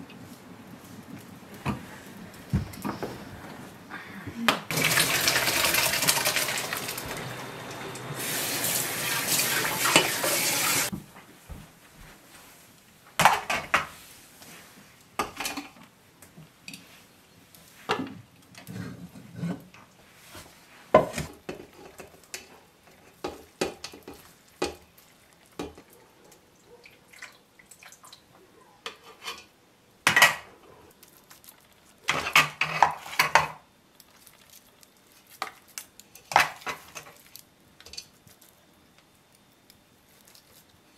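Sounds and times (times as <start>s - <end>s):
rice pouring into a pot: 4.7s - 10.9s.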